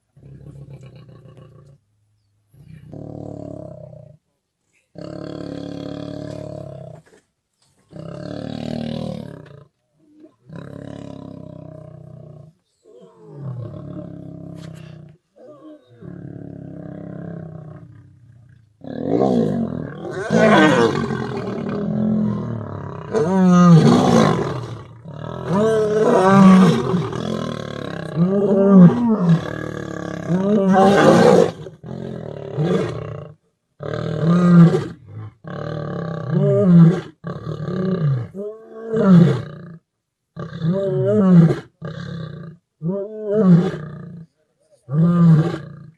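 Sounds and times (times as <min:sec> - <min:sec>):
lions growling: 0:07.9 - 0:39.6
lions snarling and roaring: 0:07.9 - 0:39.6.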